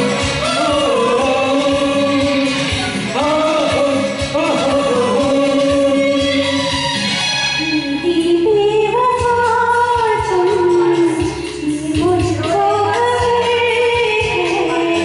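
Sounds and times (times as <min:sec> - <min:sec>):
man and woman singing duet: 0:00.0 - 0:07.0
karaoke backing track: 0:00.0 - 0:15.0.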